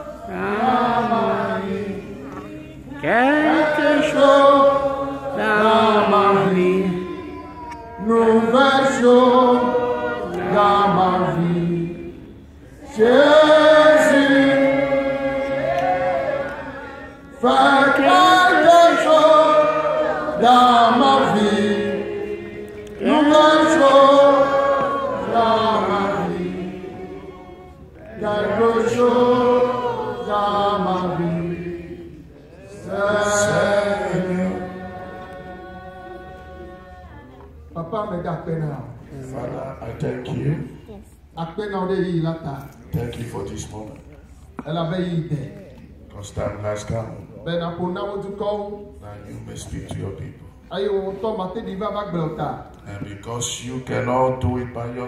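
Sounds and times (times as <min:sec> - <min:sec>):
voices singing a worship chant: 0:00.0 - 0:38.2.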